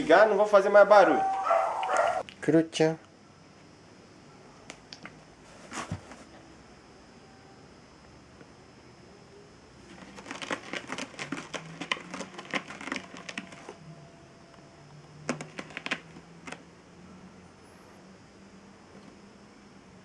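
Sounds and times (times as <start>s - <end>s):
cardboard box crackling: 9.9s - 13.8s.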